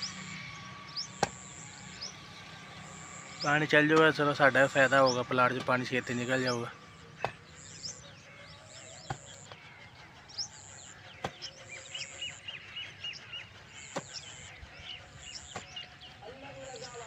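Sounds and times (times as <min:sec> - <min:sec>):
birds chirping: 0:00.0 - 0:17.0
hoe chopping wet earth: 0:01.1 - 0:01.5, 0:07.2 - 0:07.5, 0:09.0 - 0:09.6, 0:13.9 - 0:14.3, 0:15.4 - 0:15.7.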